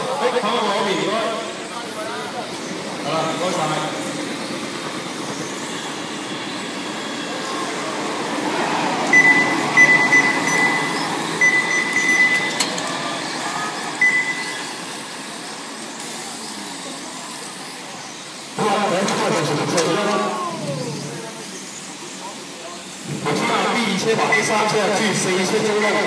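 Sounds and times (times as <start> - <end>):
rc car motors whirring: 0.0 - 26.0
high electronic beeps: 9.1 - 12.7, 14.0 - 14.8, 24.0 - 26.0.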